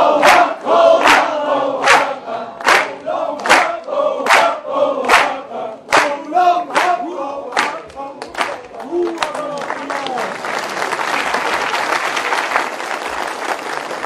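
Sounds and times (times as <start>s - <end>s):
many voices singing: 0.0s - 8.6s.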